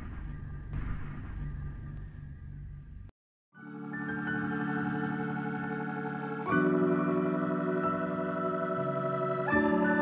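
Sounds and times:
background music of held chords: 3.6s - 10.0s.

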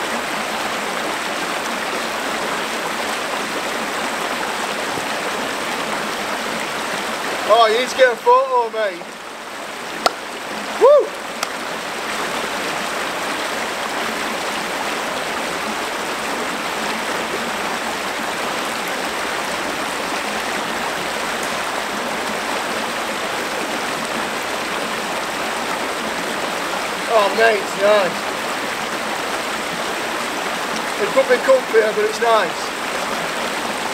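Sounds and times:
stream rushing over rocks: 0.0s - 33.9s
rising and falling call: 10.8s - 11.2s.

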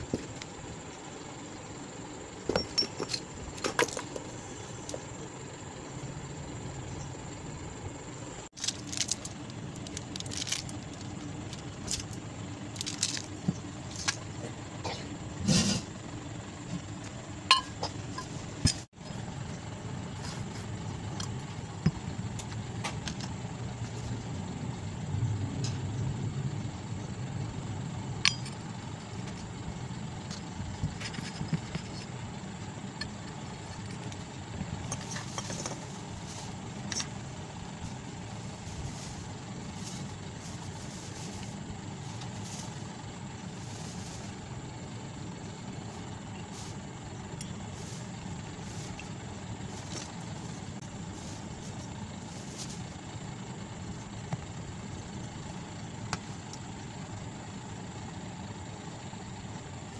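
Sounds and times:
low background rumble: 0.0s - 59.9s
metal parts clinking and knocking: 2.4s - 4.3s.

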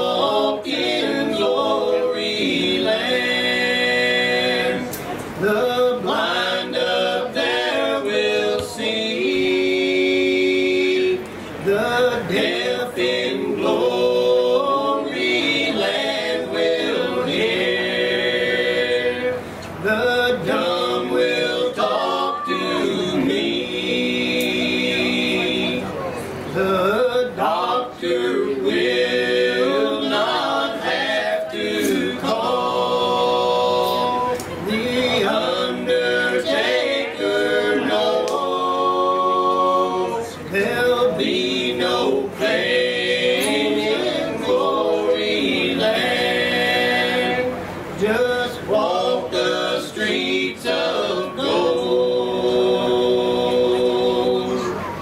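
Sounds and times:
male quartet singing a cappella: 0.0s - 55.0s.

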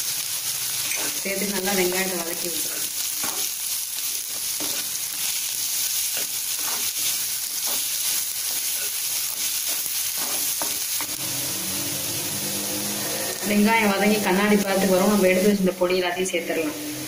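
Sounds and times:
onions sizzling in hot oil: 0.0s - 17.0s
spatula scraping a pan: 0.8s - 1.2s, 2.6s - 11.2s.

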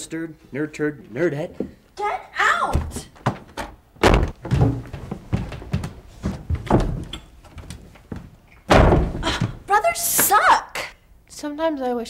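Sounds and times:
door banging: 2.7s - 5.5s, 8.6s - 9.8s
footsteps down a staircase: 2.7s - 10.3s.

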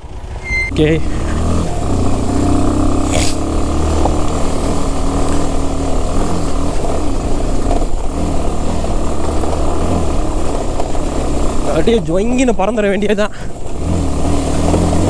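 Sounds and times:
motorcycle engine at low revs: 0.0s - 15.0s.

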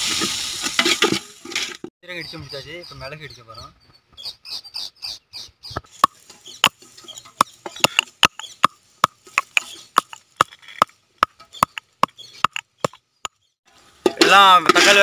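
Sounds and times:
stone pestle pounding in mortar: 6.0s - 13.4s.

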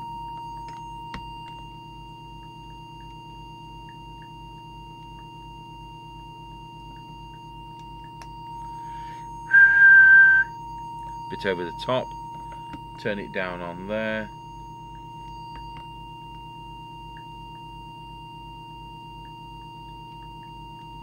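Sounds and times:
low hum: 3.8s - 17.6s
steady test tone: 6.6s - 17.6s
high whistle with hiss: 8.7s - 10.6s.

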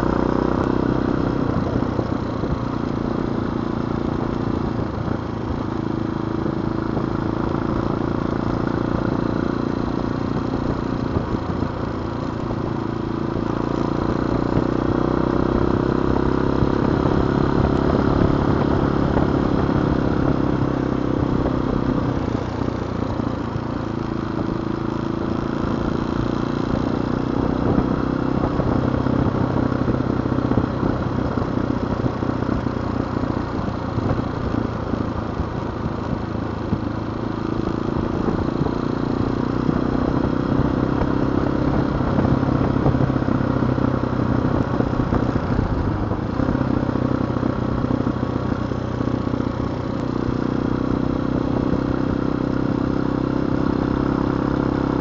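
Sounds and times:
motorcycle engine running: 0.0s - 55.0s
road noise: 0.0s - 55.0s.

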